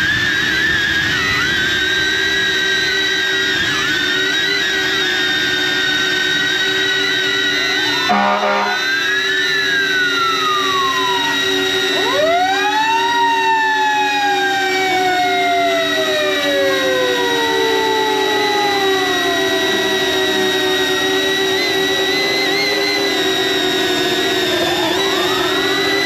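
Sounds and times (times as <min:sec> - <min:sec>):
drone propellers whining: 0:00.0 - 0:26.0
fire engine siren: 0:00.0 - 0:26.0
horn blast: 0:08.0 - 0:09.0.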